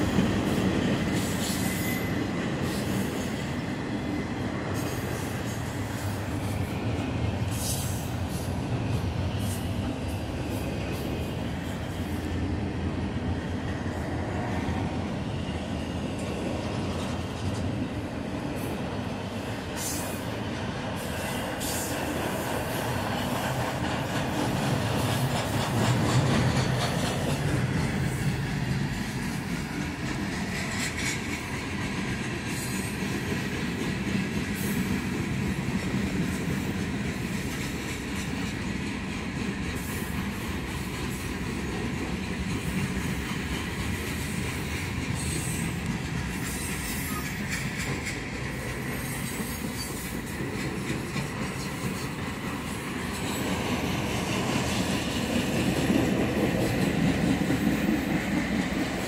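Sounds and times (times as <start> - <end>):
train wheels rumbling on rail: 0.0 - 59.0
train cars clanking: 16.0 - 59.0.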